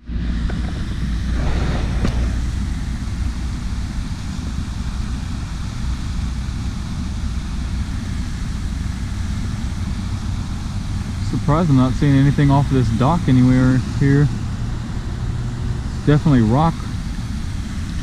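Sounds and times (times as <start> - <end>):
wind buffeting microphone: 0.6 - 3.8.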